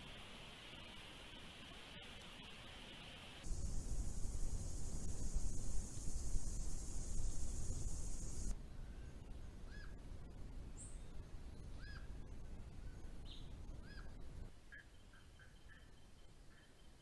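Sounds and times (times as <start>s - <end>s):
steady high hiss: 0.0s - 17.0s
faint bird chirps: 5.9s - 10.0s, 10.8s - 17.0s
bird calling: 11.7s - 12.2s, 13.3s - 16.9s.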